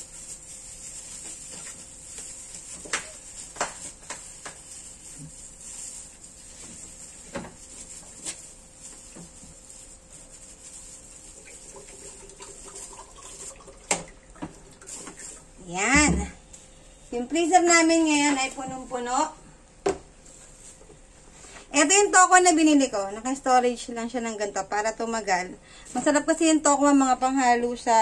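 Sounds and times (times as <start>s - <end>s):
frozen packs knocking and clicking: 1.1s - 5.3s.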